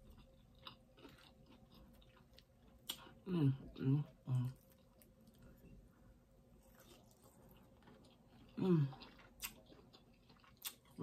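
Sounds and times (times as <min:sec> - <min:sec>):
woman humming: 0:03.3 - 0:04.6
mouth and eating noises: 0:06.6 - 0:11.0.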